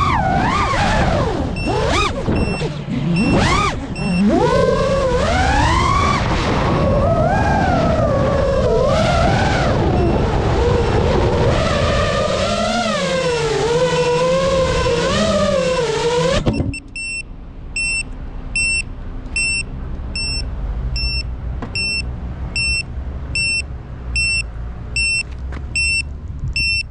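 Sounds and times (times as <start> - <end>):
drone motors whining: 0.0 - 17.0
high electronic beep: 1.6 - 1.8, 2.4 - 4.3, 10.0 - 10.2, 16.5 - 26.9.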